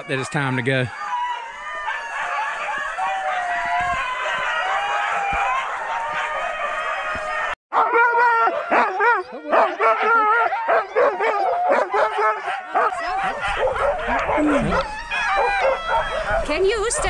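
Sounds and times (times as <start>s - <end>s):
huskies barking and howling: 0.0s - 17.0s
dogs yelping and whining: 7.8s - 16.8s.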